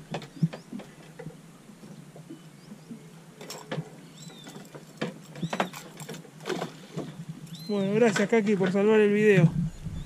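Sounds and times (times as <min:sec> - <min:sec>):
sharp knocks and splashy clicks: 0:00.0 - 0:01.4, 0:03.4 - 0:07.2.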